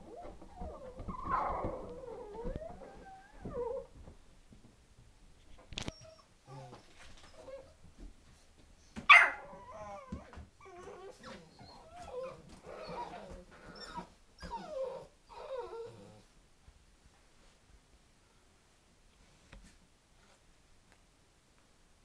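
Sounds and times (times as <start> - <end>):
puppies whining and yipping: 0.0 - 3.9, 9.1 - 16.2.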